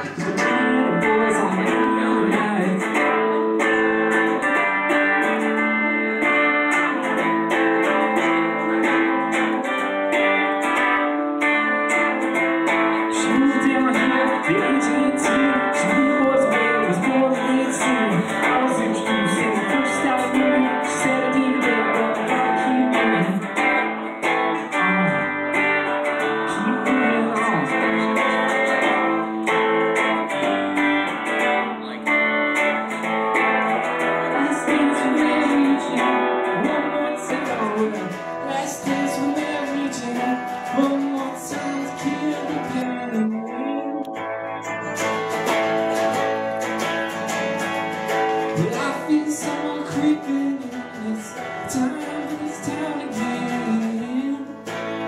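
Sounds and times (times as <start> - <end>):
electric guitar: 0.0 - 55.0
person singing: 0.0 - 55.0
strummed acoustic guitar: 0.0 - 55.0.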